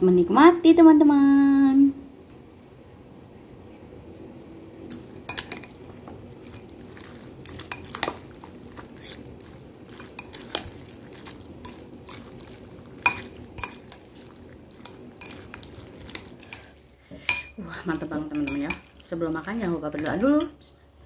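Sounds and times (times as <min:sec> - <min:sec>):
utensils clinking against bowl: 0:04.9 - 0:19.0.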